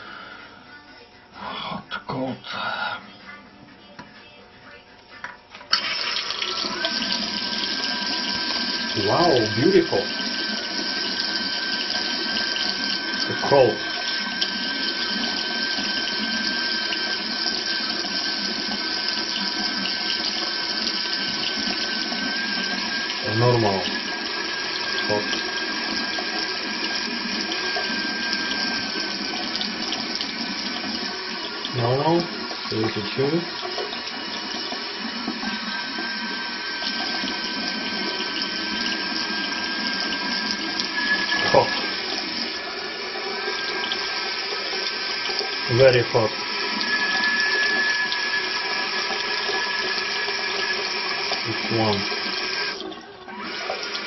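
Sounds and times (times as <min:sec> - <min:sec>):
tap water running into basin: 0:05.2 - 0:54.0
thin high tone: 0:40.8 - 0:42.2, 0:45.7 - 0:48.5.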